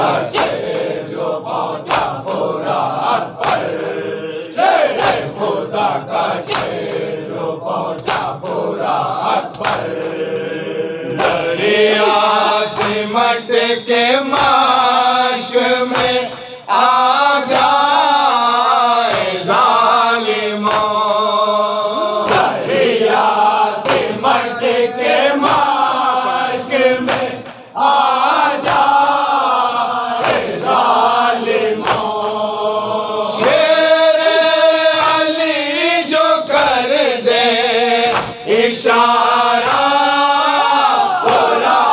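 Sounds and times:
men chanting in unison: 0.0s - 41.9s
hand slaps on chest: 0.3s - 1.0s, 1.9s - 2.8s, 3.4s - 4.0s, 5.0s - 5.6s, 6.4s - 7.1s, 8.0s - 8.4s, 9.5s - 10.2s, 12.8s - 13.0s, 15.9s - 16.5s, 19.1s - 19.4s, 20.7s - 21.0s, 23.8s - 24.2s, 25.4s - 25.9s, 26.9s - 27.6s, 28.6s - 28.9s, 31.8s - 32.4s, 38.1s - 38.4s.

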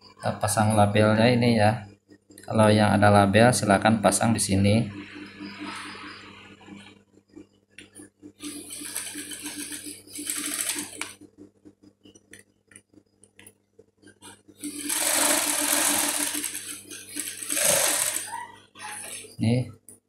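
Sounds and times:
sewing machine stitching: 8.4s - 11.2s, 14.6s - 19.3s
motor humming: 14.6s - 19.3s.

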